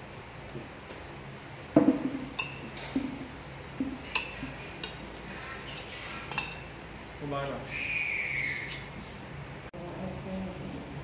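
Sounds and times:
spoons clinking on ceramic plates: 2.3s - 3.0s, 4.1s - 5.1s, 5.8s - 6.8s.

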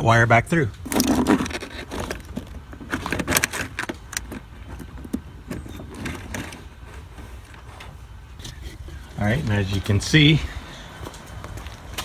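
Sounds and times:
wires rustling and scraping: 0.7s - 12.0s.

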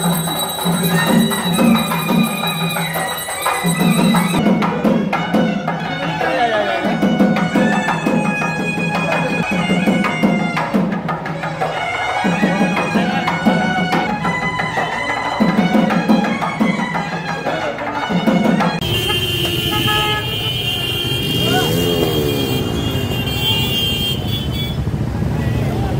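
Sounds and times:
rhythmic drumming: 0.0s - 20.0s
vehicle horns: 18.8s - 25.0s
motorcycle engines: 18.8s - 25.9s
reed pipe holding long notes: 21.3s - 23.8s.

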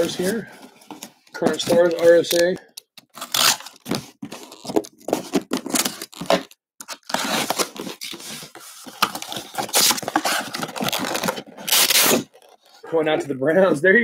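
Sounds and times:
cardboard tearing and crinkling: 3.1s - 12.8s
box cutter cutting cardboard: 3.2s - 12.4s.

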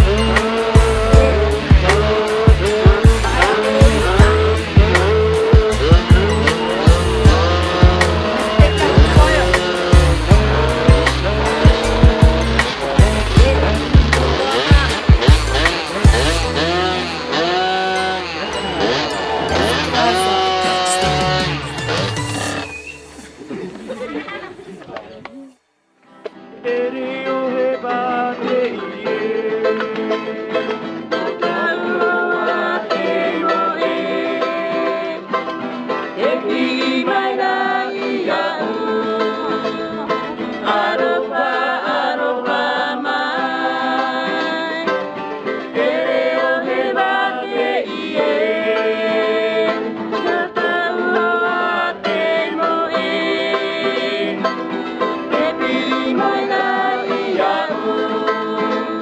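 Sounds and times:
man singing: 0.0s - 22.0s, 26.6s - 35.2s, 36.2s - 44.8s, 55.3s - 59.0s
acoustic guitar strumming: 0.0s - 23.5s, 26.1s - 41.4s, 44.2s - 59.0s
small string instrument strummed: 2.0s - 22.7s.

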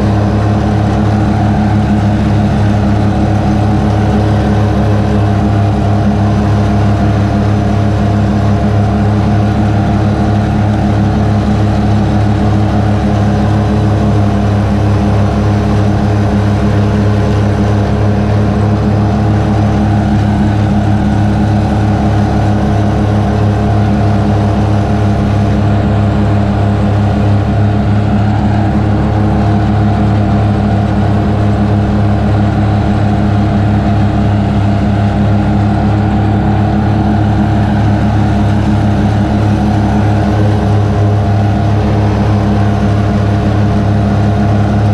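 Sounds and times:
riding mower engine drone: 0.0s - 44.9s.

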